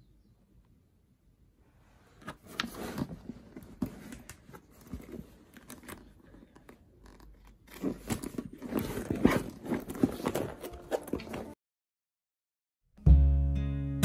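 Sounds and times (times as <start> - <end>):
canvas and leather bag rustling: 2.6 - 11.6.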